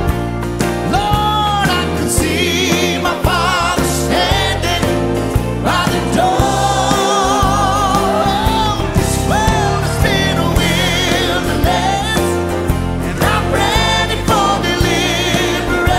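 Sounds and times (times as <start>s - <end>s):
bass and drums: 0.0s - 15.9s
lead voice singing with vibrato: 0.9s - 15.9s
choir singing: 1.6s - 15.9s.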